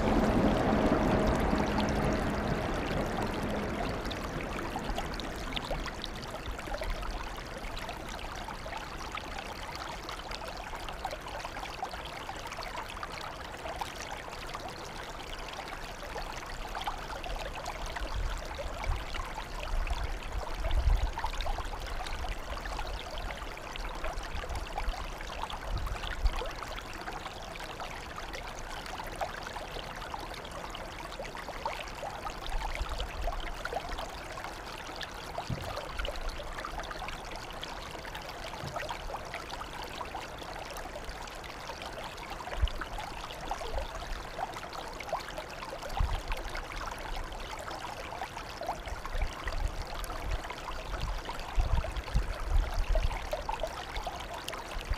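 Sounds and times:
low rumbles: 0.0s - 7.2s
water flowing and trickling: 0.0s - 54.9s.

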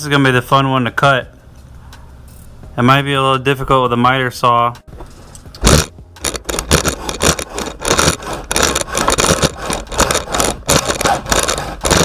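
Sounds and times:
hand saw cutting metal: 6.5s - 12.0s.

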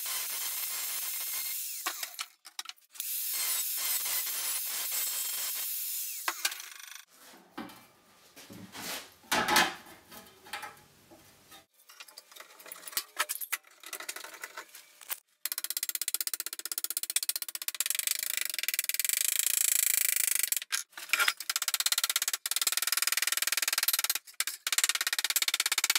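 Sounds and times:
angle grinder cutting sheet metal: 0.0s - 2.2s, 3.0s - 7.1s.

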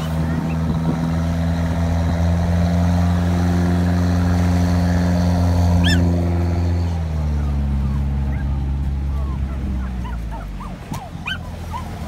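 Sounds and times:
boat engine droning: 0.0s - 12.0s
gull calling: 5.8s - 6.2s.

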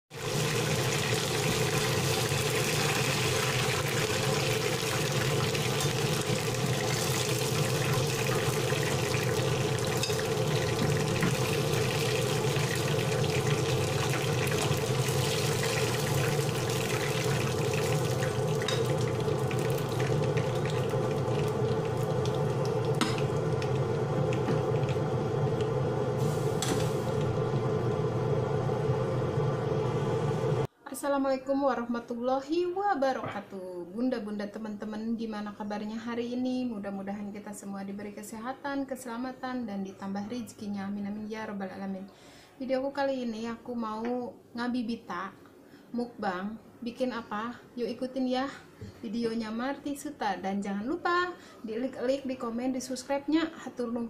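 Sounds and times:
chicken frying in oil: 0.1s - 29.4s
steady low hum: 7.7s - 30.7s.

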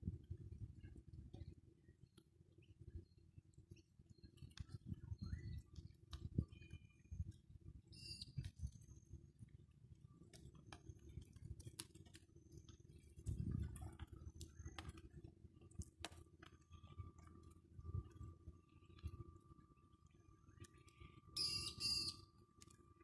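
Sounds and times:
small clicks: 10.2s - 18.2s, 20.0s - 22.9s
birds chirping: 20.6s - 22.2s.

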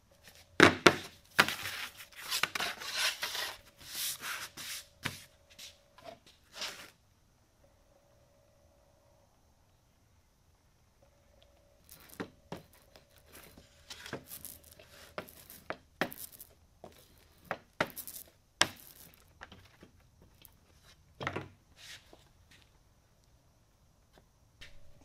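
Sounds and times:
roller spreading wet glue: 1.0s - 5.8s, 11.9s - 19.8s.

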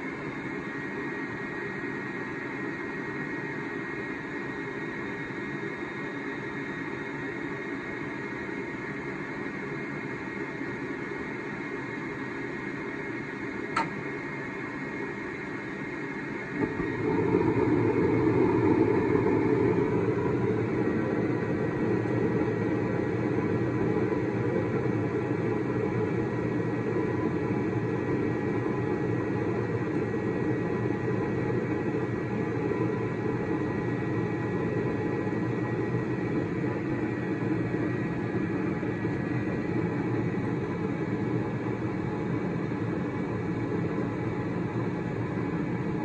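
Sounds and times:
furnace running noise: 0.0s - 46.0s
sharp click: 13.8s - 14.0s
gas burners igniting and rushing: 16.6s - 23.0s.

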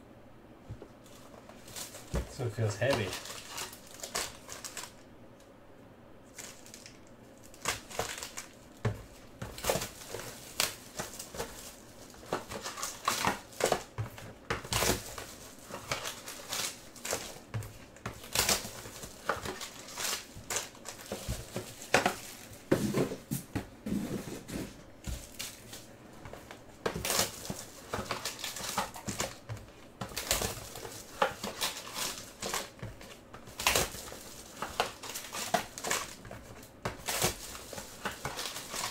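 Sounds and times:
foil wrappers crinkling: 1.0s - 5.0s, 6.3s - 23.0s, 25.0s - 38.9s
sharp foil crackles: 1.6s - 5.0s, 9.6s - 14.0s, 18.2s - 22.5s, 27.0s - 29.5s, 30.1s - 38.9s.

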